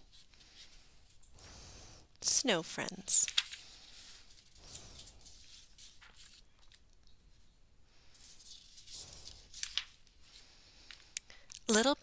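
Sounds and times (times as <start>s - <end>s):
book pages turning: 2.8s - 7.2s, 8.1s - 10.4s.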